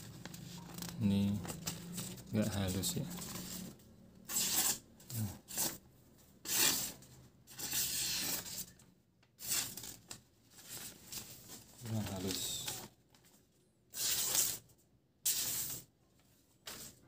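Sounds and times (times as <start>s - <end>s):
knife slicing paper: 4.3s - 4.8s, 5.4s - 5.8s, 6.4s - 8.7s, 9.4s - 10.0s, 13.9s - 14.6s, 15.3s - 15.9s.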